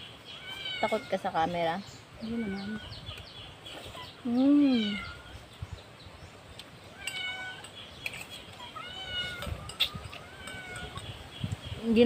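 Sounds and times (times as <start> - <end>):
cat meowing: 6.9 - 7.7, 8.6 - 11.0.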